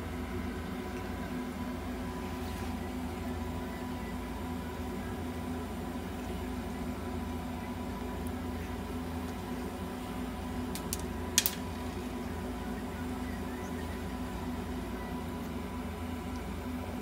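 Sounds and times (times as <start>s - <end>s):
faint high whine: 0.0s - 17.0s
machine hum: 0.0s - 17.0s
small clicks: 10.7s - 11.6s.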